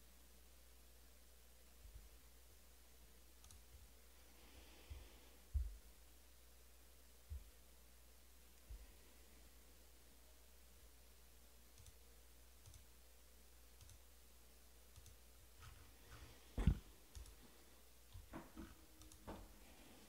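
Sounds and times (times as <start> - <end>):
faint irregular clicks: 3.4 - 3.9, 11.7 - 12.0, 12.6 - 12.9, 13.8 - 14.1, 14.9 - 17.5, 18.1 - 19.5.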